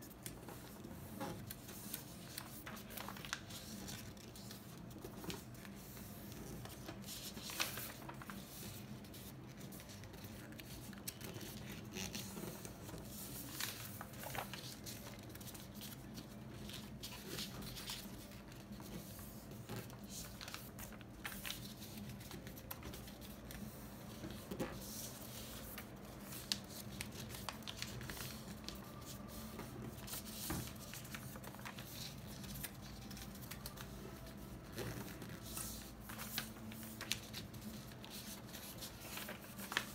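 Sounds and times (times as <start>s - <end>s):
paper being folded and creased: 0.0s - 39.9s.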